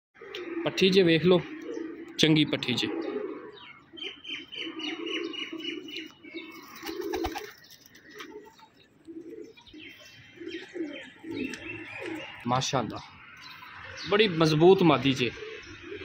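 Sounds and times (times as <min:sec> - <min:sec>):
pigeons cooing: 0:00.2 - 0:16.0
wings flapping: 0:06.5 - 0:09.3.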